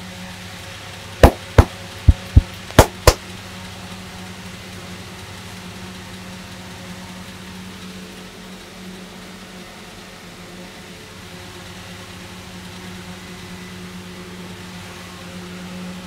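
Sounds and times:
steady low hum: 0:00.0 - 0:16.0
hands slapping head: 0:01.2 - 0:03.2.

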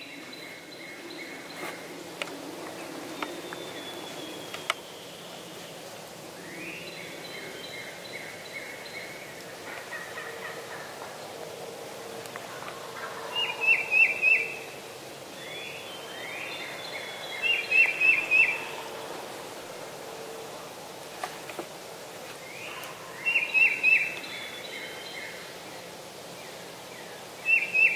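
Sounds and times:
wild turkey calling: 0:09.6 - 0:11.3, 0:12.2 - 0:14.8, 0:15.4 - 0:18.9.

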